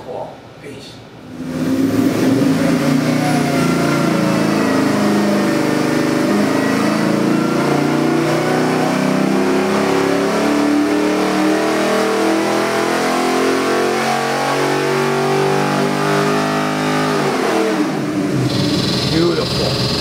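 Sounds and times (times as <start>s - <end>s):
engine revving under load: 1.2s - 20.0s.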